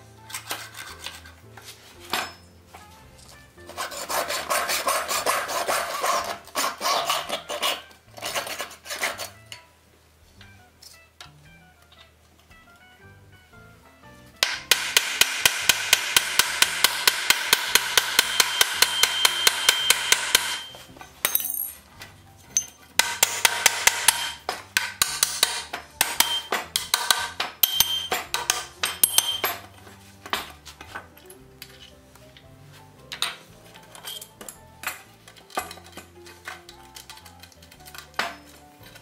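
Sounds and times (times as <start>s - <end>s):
hammer striking iron fittings: 14.4s - 21.8s, 22.4s - 31.8s.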